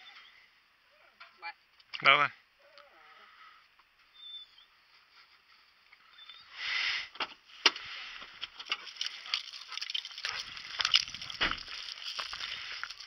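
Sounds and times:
footsteps crunching on gravel: 0:07.5 - 0:13.0.

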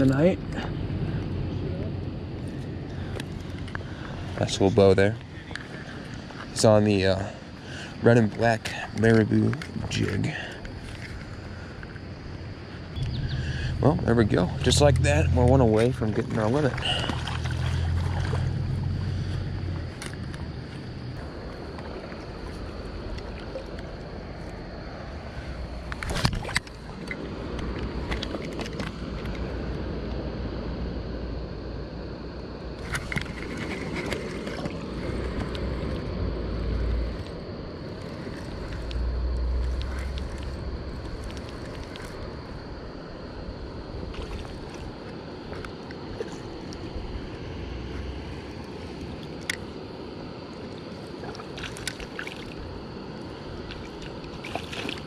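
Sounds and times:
stream flowing: 0:00.0 - 0:29.9, 0:32.7 - 0:55.0
wind buffeting microphone: 0:12.8 - 0:21.4.

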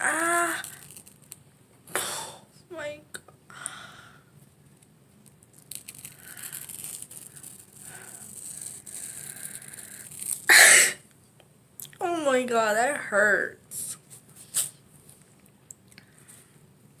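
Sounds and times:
person crying out in pain: 0:00.0 - 0:00.8
face mask peeling off skin: 0:00.0 - 0:01.4, 0:04.7 - 0:10.6.

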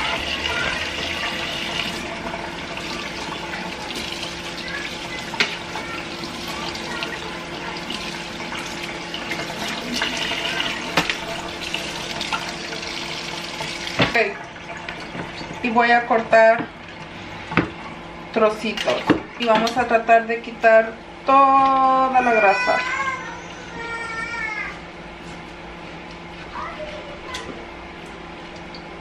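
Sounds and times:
faucet water splashing in sink: 0:00.0 - 0:19.9.

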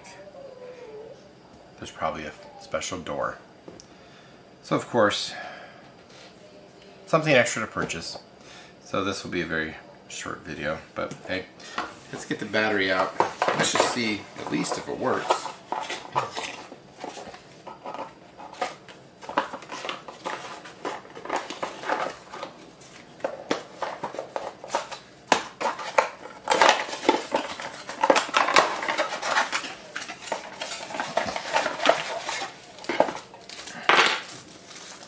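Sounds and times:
paper and cardboard rustling: 0:12.1 - 0:35.0.

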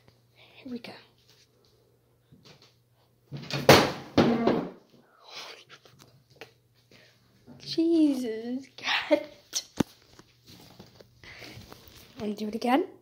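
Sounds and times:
rustling: 0:09.8 - 0:12.4.

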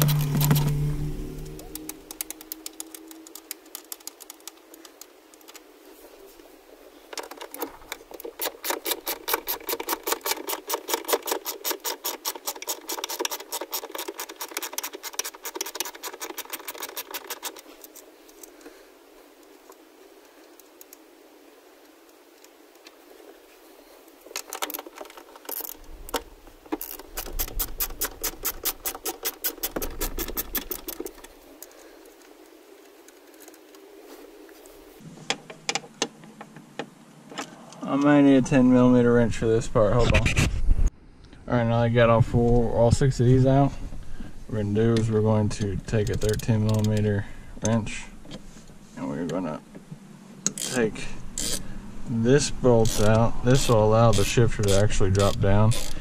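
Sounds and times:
low handling bumps: 0:00.0 - 0:04.6
socket ratchet clicking: 0:08.2 - 0:18.0, 0:26.8 - 0:31.2, 0:50.5 - 0:51.6, 0:52.8 - 0:56.0.

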